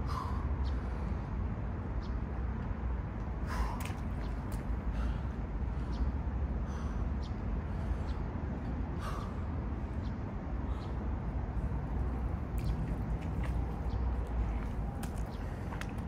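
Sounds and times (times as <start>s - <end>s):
hands tapping wet pavement: 14.5s - 16.0s.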